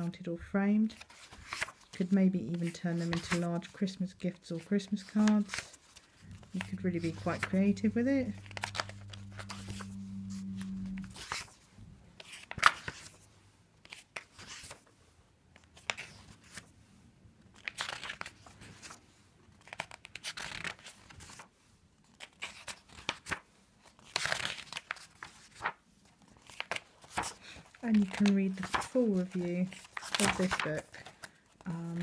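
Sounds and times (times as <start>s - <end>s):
paper pages turning: 0.9s - 3.9s, 4.6s - 14.9s, 15.6s - 16.7s, 17.5s - 19.0s, 19.6s - 21.5s, 22.1s - 32.0s.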